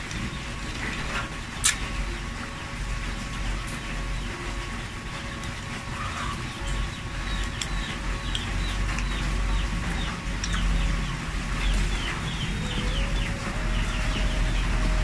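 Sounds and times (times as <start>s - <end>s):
birds cheeping: 3.8s - 15.0s.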